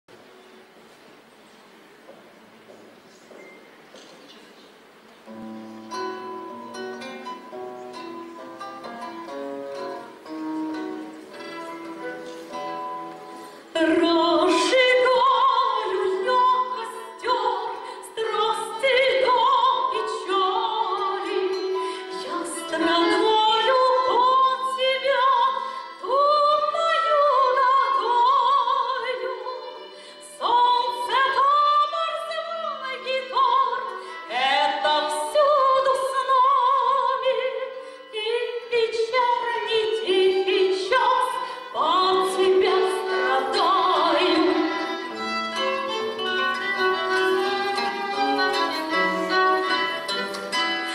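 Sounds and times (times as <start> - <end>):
acoustic guitar: 5.2 - 50.9
violin: 5.3 - 50.9
woman singing with vibrato: 13.7 - 45.2.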